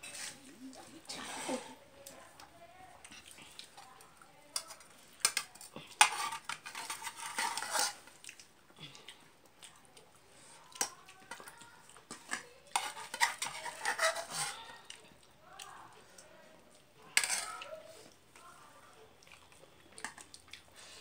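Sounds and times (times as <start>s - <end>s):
rice scraping on metal plate: 0.0s - 0.5s, 1.1s - 1.8s, 6.0s - 8.0s, 12.2s - 14.8s, 17.1s - 17.6s
chewing: 0.1s - 21.0s.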